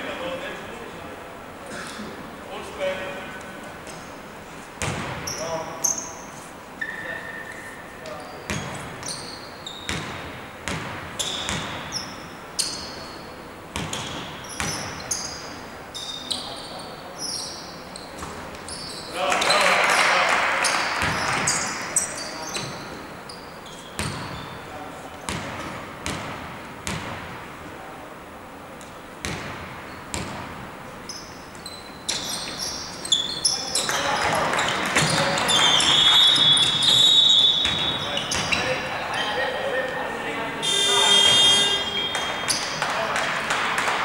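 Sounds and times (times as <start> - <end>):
sneaker squeaks on floor: 4.8 - 19.7, 20.6 - 27.0, 31.0 - 39.6, 40.6 - 42.8
basketball bouncing on hardwood: 9.9 - 11.9, 13.8 - 14.9.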